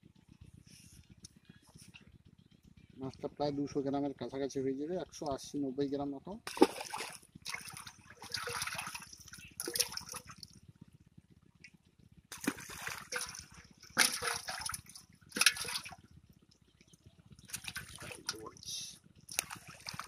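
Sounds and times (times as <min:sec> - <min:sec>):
water splashing in a metal pot: 0:06.5 - 0:10.4, 0:12.3 - 0:16.0, 0:17.5 - 0:18.7, 0:19.3 - 0:20.0.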